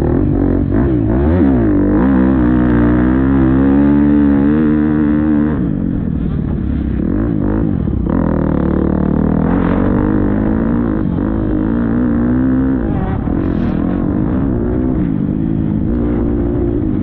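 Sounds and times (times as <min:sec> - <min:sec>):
motocross bike engine revving: 0:00.0 - 0:17.0.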